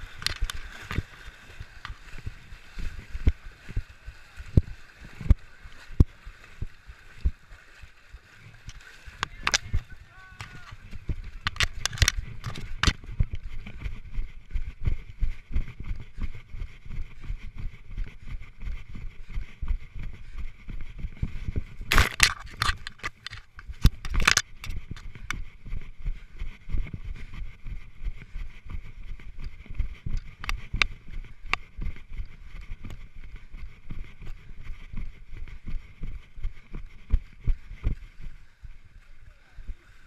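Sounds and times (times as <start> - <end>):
sharp crackling scrapes: 0.0 - 3.7, 8.3 - 14.4, 21.1 - 25.6
running footfalls on grass: 0.0 - 24.0, 24.7 - 38.4
camera housing rubbing and jolting: 0.2 - 1.1, 11.4 - 13.0, 21.9 - 25.3.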